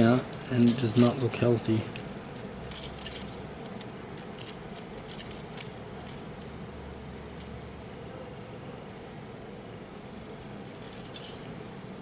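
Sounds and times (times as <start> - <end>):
metal rings jingling: 0.0 - 1.3, 1.9 - 6.5, 10.0 - 11.6.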